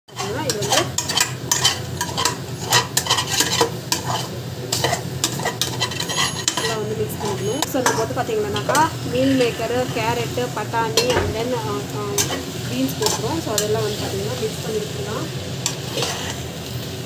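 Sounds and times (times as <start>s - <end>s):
metal spoon scraping a pot: 0.1s - 9.8s, 12.2s - 14.0s, 15.6s - 16.6s
light frying sizzle: 0.1s - 17.0s.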